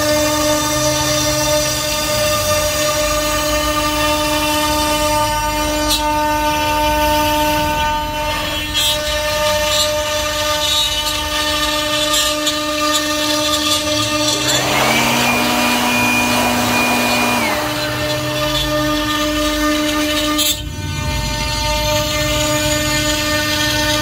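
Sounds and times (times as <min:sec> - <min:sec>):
machine motor whining: 0:13.7 - 0:19.3.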